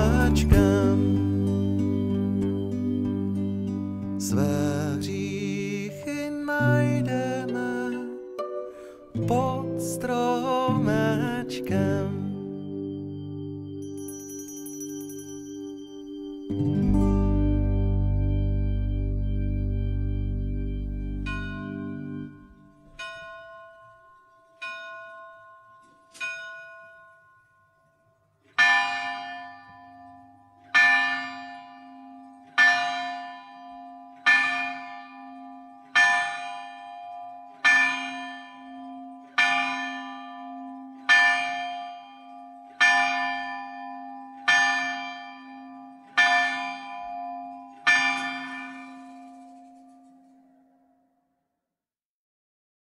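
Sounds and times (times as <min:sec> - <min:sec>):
lighter higher bell: 0:12.4 - 0:17.0
bell striking slow strokes: 0:12.6 - 0:16.8, 0:20.6 - 0:50.7.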